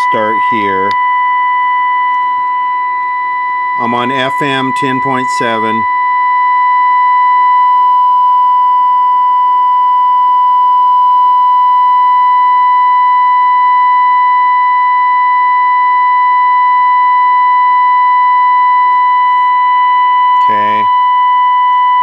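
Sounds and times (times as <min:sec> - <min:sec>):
buzzy test tone from radio speaker: 0:00.0 - 0:22.0.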